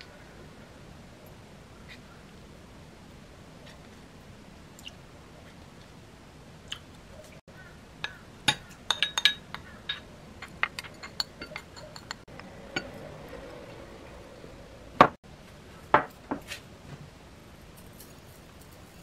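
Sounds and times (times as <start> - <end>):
wooden spoon clicking on bowls: 8.0 - 12.9.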